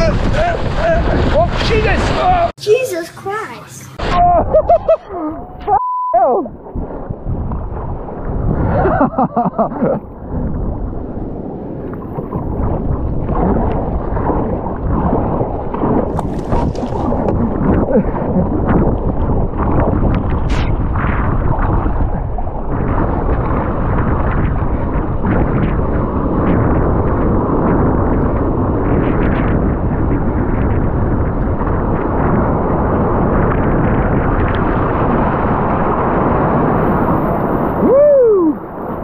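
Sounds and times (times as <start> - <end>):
wind buffeting microphone: 0.0 - 2.6, 6.3 - 39.0
surf and whitewater rushing: 0.0 - 5.1, 34.4 - 39.0
person whooping: 4.1 - 5.8, 37.8 - 38.6.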